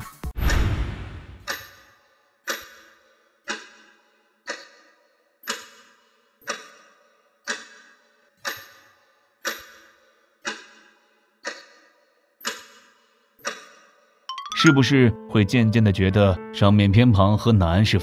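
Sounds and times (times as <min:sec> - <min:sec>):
clock ticking: 0:02.5 - 0:03.9, 0:04.5 - 0:11.8, 0:12.4 - 0:15.0.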